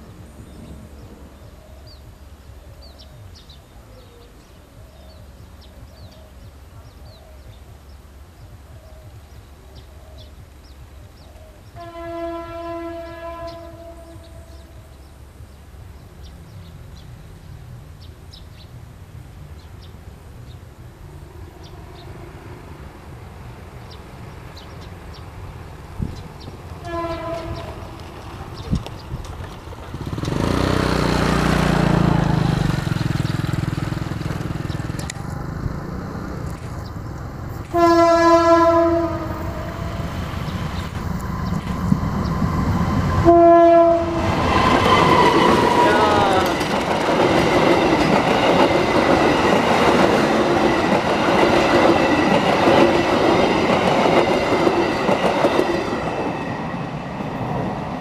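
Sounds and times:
locomotive horn blasts: 11.8s - 14.5s, 26.8s - 27.8s, 37.7s - 40.1s, 43.1s - 45.8s
locomotive engine: 20.0s - 58.0s.

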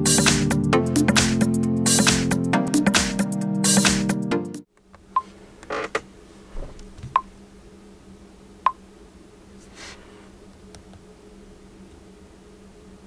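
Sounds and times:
hands rustling: 9.6s - 10.4s.

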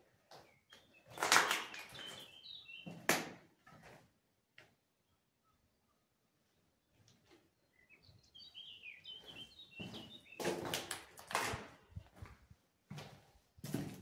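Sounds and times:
small bird chirping: 0.5s - 3.1s, 7.6s - 10.4s
footsteps on gritty concrete: 9.2s - 14.0s.

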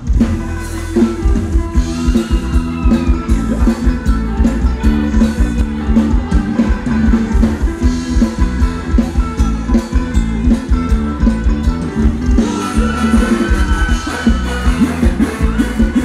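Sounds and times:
drum kit beat: 0.0s - 16.0s
live band dance music: 0.0s - 16.0s.

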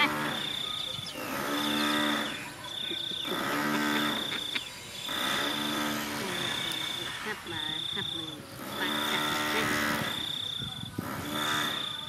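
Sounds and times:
insects trilling: 0.0s - 12.0s
low drawn-out animal calls: 0.0s - 12.0s.

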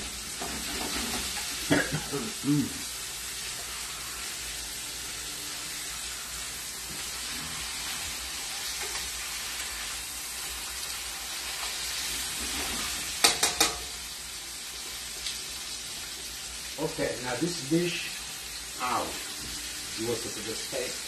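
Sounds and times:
steaks sizzling in a pan: 0.0s - 21.0s
tongs knocking against a pan: 13.2s - 14.0s.

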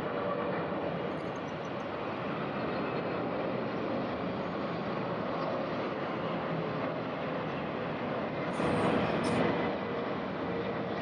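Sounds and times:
jet engine rushing: 8.6s - 9.7s.

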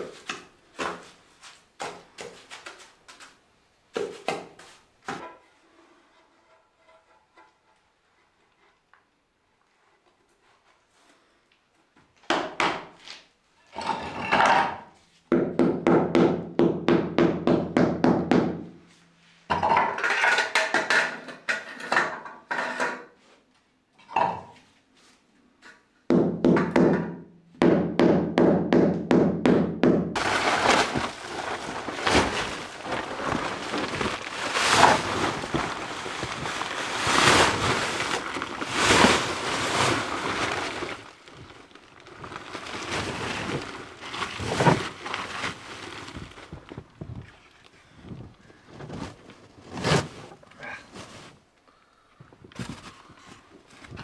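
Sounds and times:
plastic tarp rustling: 30.2s - 51.5s.

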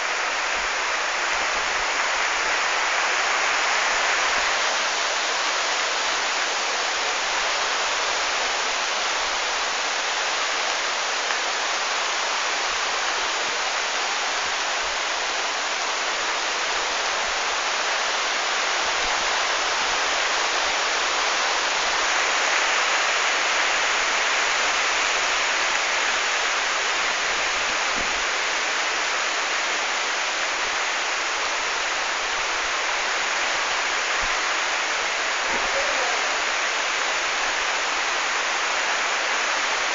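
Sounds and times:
heavy rain pouring: 0.0s - 39.9s.

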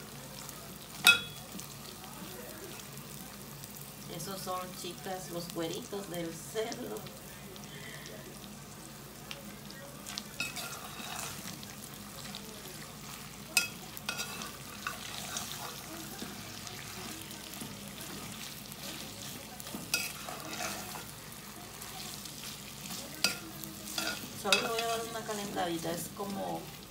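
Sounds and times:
meat sizzling in hot oil: 0.0s - 26.9s
metal spoon scraping a pot: 10.4s - 11.4s, 13.6s - 15.9s, 19.8s - 21.1s.

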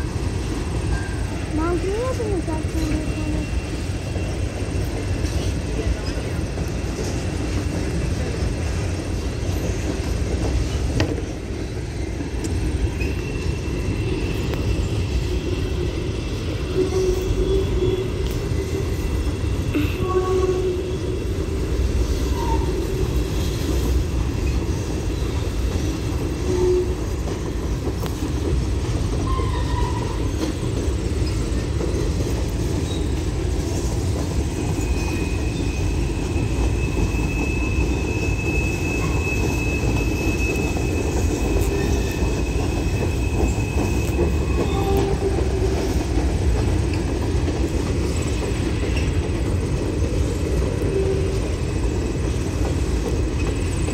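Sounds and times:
train wheels rumbling on rail: 0.0s - 53.9s
high wheel squeal: 11.9s - 19.3s, 29.2s - 31.7s, 32.8s - 33.3s, 34.4s - 46.0s.

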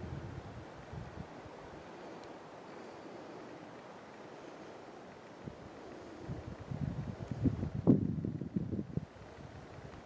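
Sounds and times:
wind noise on microphone: 0.0s - 1.8s, 5.4s - 10.0s.

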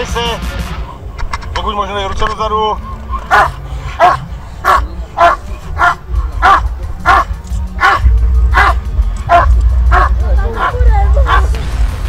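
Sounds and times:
dog barking: 3.3s - 11.6s.

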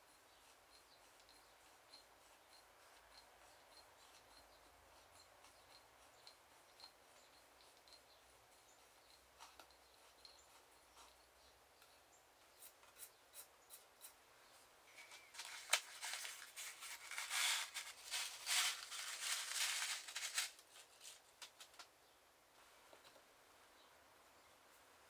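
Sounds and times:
paper rustling: 15.0s - 21.8s.

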